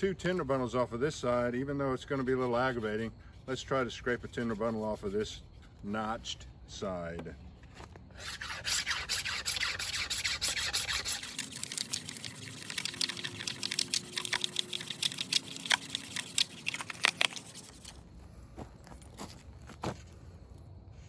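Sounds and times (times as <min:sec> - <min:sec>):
knife scraping bamboo: 0:02.0 - 0:06.4, 0:07.8 - 0:18.1.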